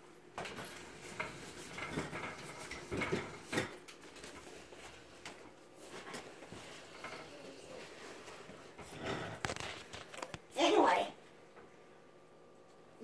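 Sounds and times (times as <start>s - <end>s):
furniture knocking and clattering: 0.4s - 4.6s.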